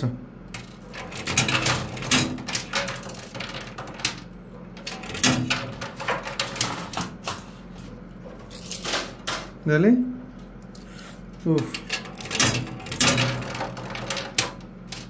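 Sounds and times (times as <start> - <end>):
faint machine hum: 0.0 - 15.0
coins clinking and clattering: 0.6 - 4.2, 4.8 - 7.6, 8.4 - 9.5, 11.7 - 15.0.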